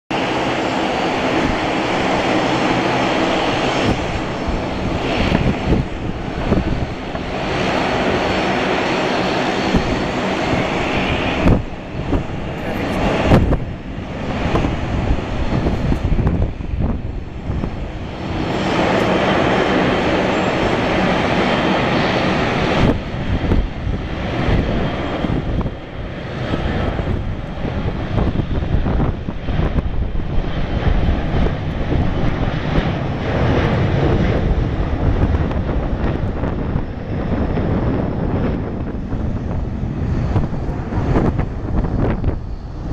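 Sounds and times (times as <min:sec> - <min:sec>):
jet engines rumbling: 0:00.1 - 0:42.9.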